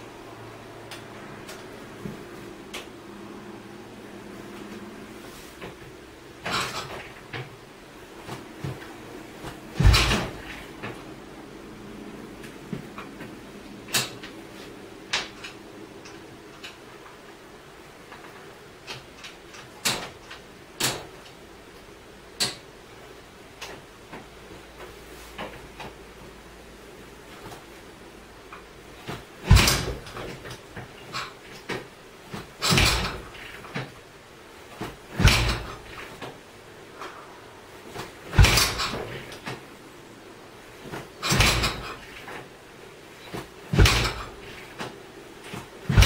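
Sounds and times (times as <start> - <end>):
motorcycle kick-start thumps: 9.8 - 11.0, 29.0 - 30.6, 38.0 - 39.6, 43.3 - 44.9.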